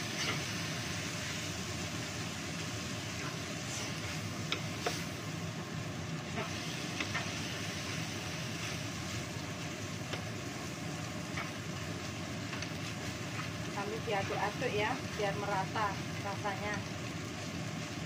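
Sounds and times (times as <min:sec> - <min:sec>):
rice frying hiss: 0:00.0 - 0:18.0
wooden spatula scraping a pan: 0:03.2 - 0:05.1.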